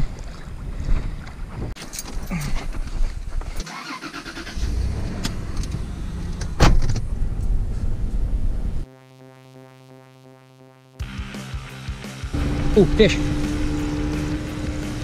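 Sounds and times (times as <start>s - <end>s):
road noise: 1.8s - 8.8s, 11.8s - 15.0s
car engine running: 4.5s - 8.8s, 11.0s - 15.0s
sharp thump: 6.5s - 7.1s.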